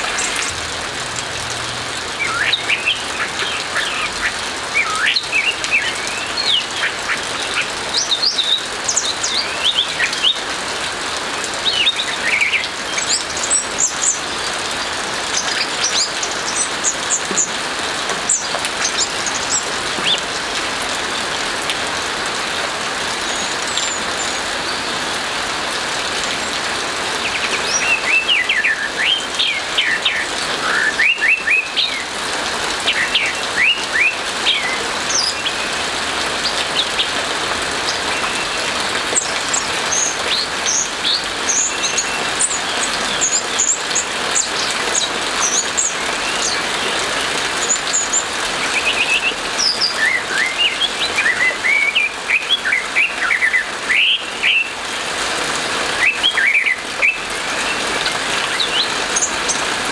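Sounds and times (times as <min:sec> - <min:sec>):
rain hissing: 0:00.0 - 0:59.9
thrush singing whistled notes: 0:02.1 - 0:10.4, 0:27.2 - 0:32.1, 0:32.9 - 0:35.8, 0:47.6 - 0:54.8, 0:55.9 - 0:57.8.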